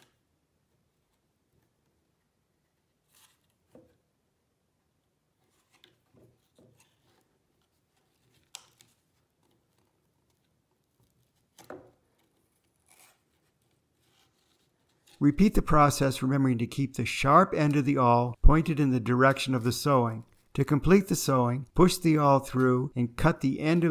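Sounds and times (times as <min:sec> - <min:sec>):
cardboard and twine rustling: 0:05.4 - 0:15.2.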